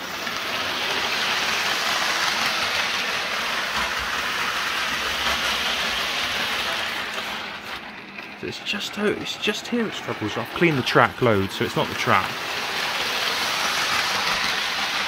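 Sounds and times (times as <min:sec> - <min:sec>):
model train whirring on rails: 0:00.0 - 0:15.0.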